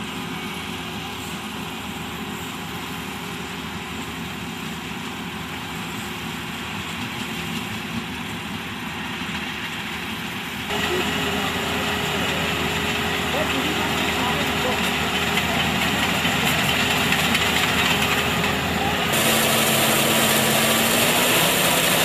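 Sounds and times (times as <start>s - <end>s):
combine harvester engine hum: 0.0s - 22.0s
harsh machine running: 10.7s - 22.0s.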